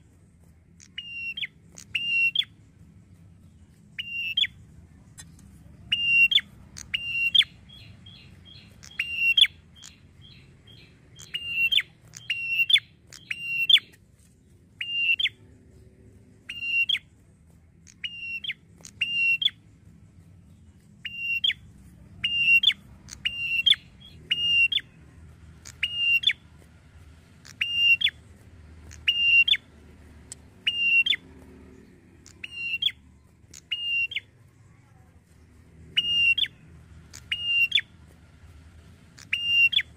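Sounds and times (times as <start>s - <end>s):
bird calling sharp notes: 0.8s - 2.6s, 4.0s - 4.6s, 5.2s - 14.0s, 14.8s - 15.4s, 16.5s - 17.1s, 17.9s - 19.6s, 21.0s - 25.0s, 25.6s - 26.4s, 27.4s - 29.8s, 30.5s - 34.4s, 35.9s - 38.0s, 39.1s - 39.9s.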